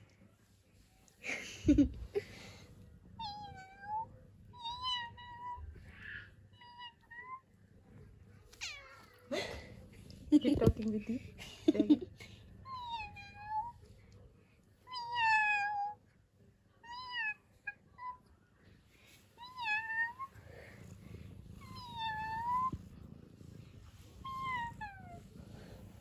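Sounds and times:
cat purring: 18.6 - 26.0
cat meowing: 21.5 - 23.5, 24.2 - 25.4.

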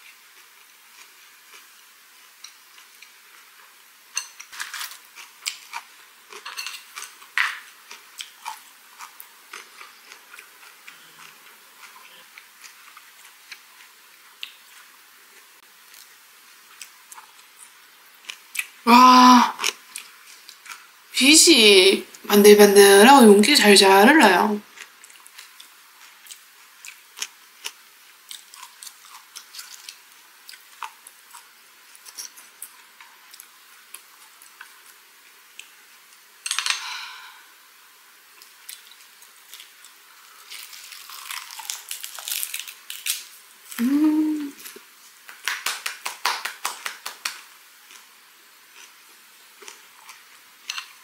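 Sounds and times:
crunchy chewing: 2.4 - 18.8, 24.7 - 35.0, 38.4 - 43.8
person humming: 18.9 - 19.6, 43.8 - 44.7.

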